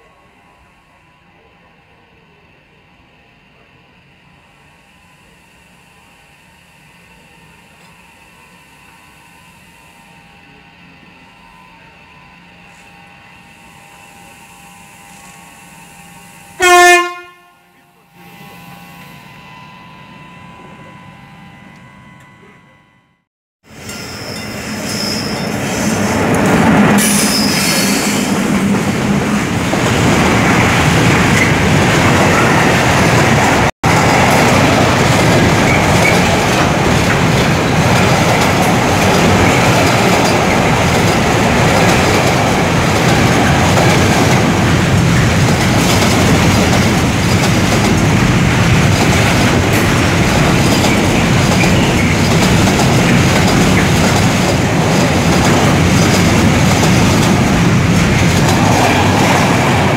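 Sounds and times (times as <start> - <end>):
electric locomotive hum: 0.0 - 59.9
train wheels on rails: 23.6 - 59.9.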